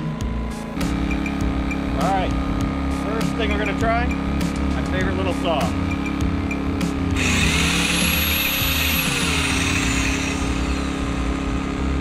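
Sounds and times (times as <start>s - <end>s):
generator running: 5.7s - 12.0s
circular saw motor whining: 7.2s - 12.0s.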